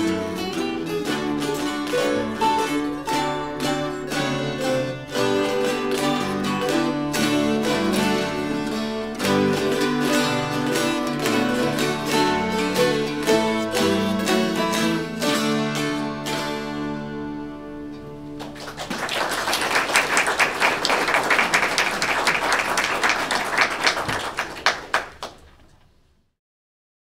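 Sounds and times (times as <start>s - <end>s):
audience clapping: 0.0s - 15.0s, 18.4s - 25.9s
dulcimers plucking: 0.0s - 18.6s.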